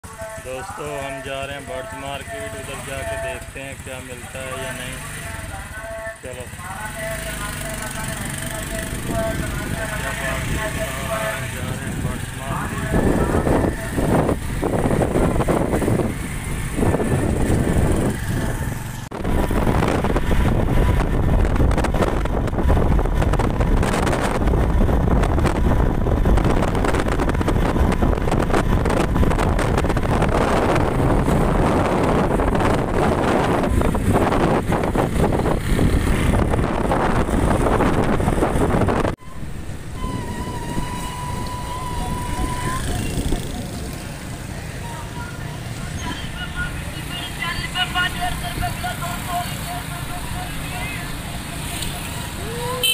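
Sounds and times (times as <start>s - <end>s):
street sound: 0.0s - 52.9s
vehicle engine and traffic: 0.0s - 52.9s
wind buffeting microphone: 11.5s - 44.3s
steady high tone: 39.2s - 43.3s.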